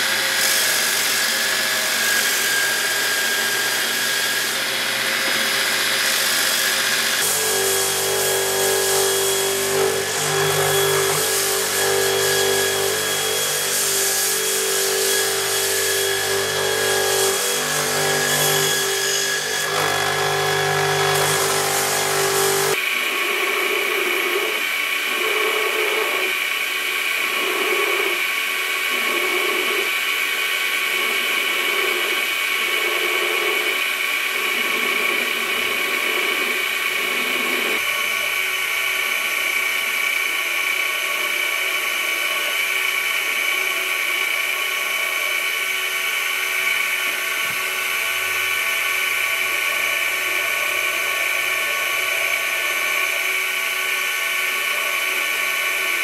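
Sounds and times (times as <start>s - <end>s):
belt grinder whining: 0.0s - 22.8s.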